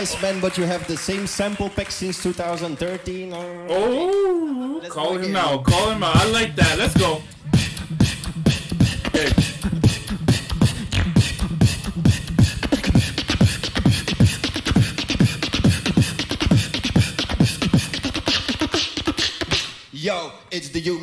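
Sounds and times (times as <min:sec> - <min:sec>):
person beatboxing: 0:05.6 - 0:20.0.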